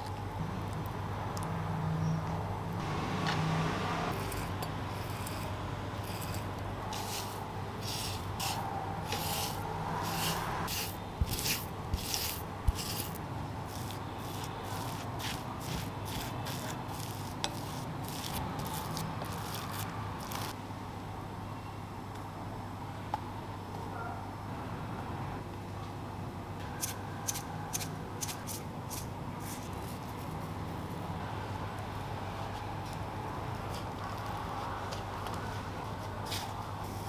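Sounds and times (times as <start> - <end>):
spatula scraping glass bowl: 4.1 - 20.5
potato grating on grater: 4.1 - 20.6.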